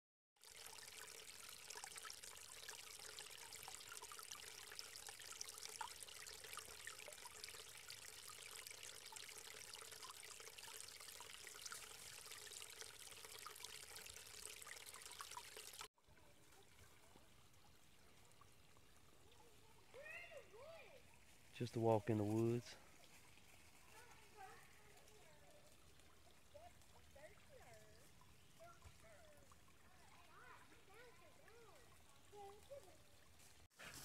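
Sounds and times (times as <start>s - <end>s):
creek trickling and splashing: 0.4s - 34.0s.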